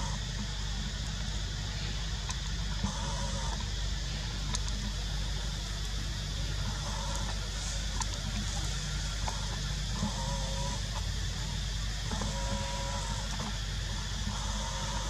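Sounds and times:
low hum and hiss: 0:00.0 - 0:15.0
drawn-out animal calls: 0:02.7 - 0:03.7, 0:06.4 - 0:15.0.

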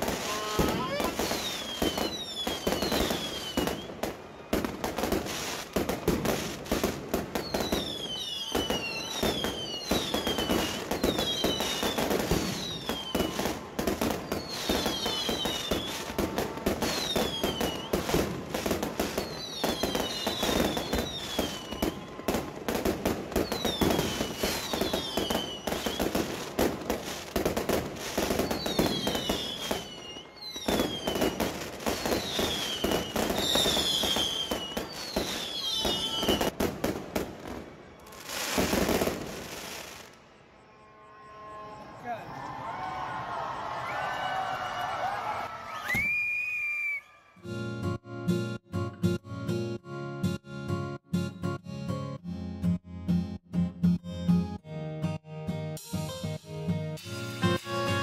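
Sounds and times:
fireworks bangs and crackling: 0:00.0 - 0:40.2
fireworks whistles falling in pitch: 0:00.0 - 0:42.8, 0:45.7 - 0:47.2, 0:57.0 - 0:58.0.

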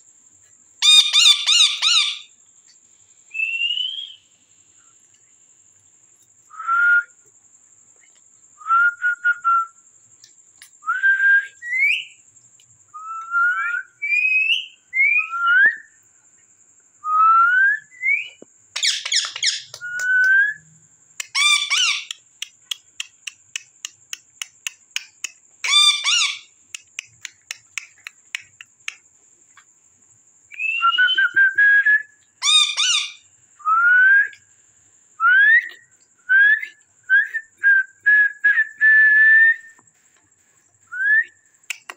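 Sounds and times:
parakeet screeches: 0:00.8 - 0:02.2, 0:21.3 - 0:22.1, 0:25.6 - 0:26.5, 0:32.4 - 0:33.2
parakeets whistling calls: 0:00.8 - 0:02.3, 0:03.4 - 0:04.2, 0:13.5 - 0:15.8, 0:18.0 - 0:20.6, 0:21.2 - 0:22.2, 0:25.6 - 0:26.5, 0:32.4 - 0:33.2
quick clicks: 0:26.7 - 0:29.0, 0:41.7 - 0:41.9.

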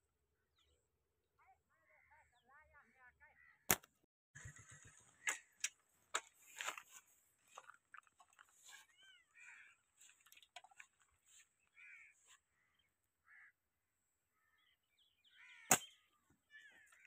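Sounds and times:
lapwings calling: 0:08.6 - 0:13.6, 0:14.4 - 0:17.0
slingshot snap: 0:15.7 - 0:15.9.

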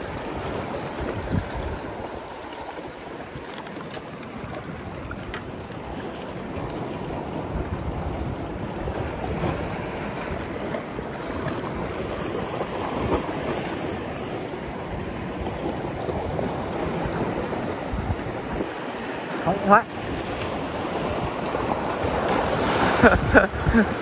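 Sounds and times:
wind buffeting microphone: 0:00.0 - 0:19.2, 0:19.9 - 0:24.0
sea surf washing: 0:00.0 - 0:24.0.

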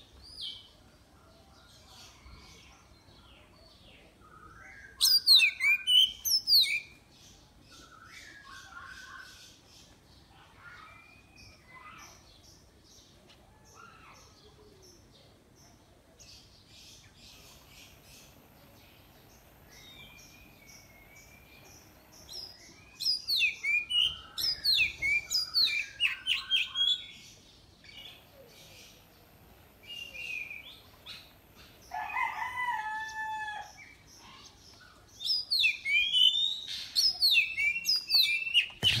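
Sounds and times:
faint bird chirps: 0:01.2 - 0:12.4, 0:33.9 - 0:39.0
bird singing: 0:01.7 - 0:13.1, 0:13.7 - 0:39.0.

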